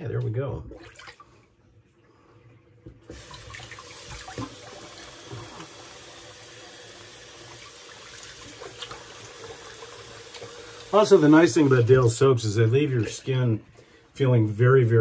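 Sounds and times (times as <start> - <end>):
water running into a sink: 3.0 - 12.2
hands rinsing face: 3.1 - 12.1.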